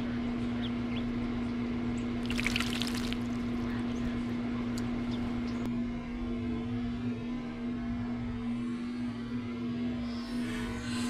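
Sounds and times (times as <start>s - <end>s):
steady low hum: 0.0s - 11.0s
faint water drips: 2.2s - 3.5s
bird wings splashing water: 2.2s - 3.6s.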